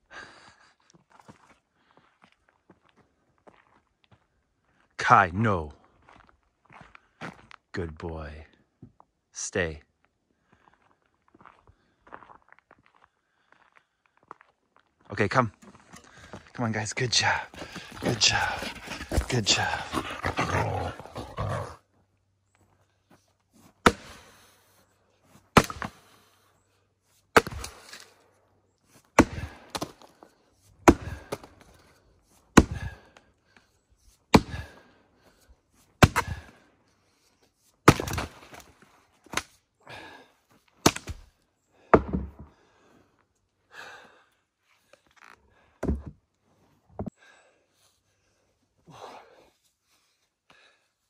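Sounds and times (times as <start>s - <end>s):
axe chopping wood: 23.8s - 24.3s, 25.5s - 26.1s, 27.3s - 28.1s, 29.1s - 30.1s, 30.8s - 31.7s, 32.5s - 33.1s, 34.3s - 34.8s, 36.0s - 36.5s, 37.8s - 38.6s, 40.8s - 41.3s, 41.9s - 42.5s.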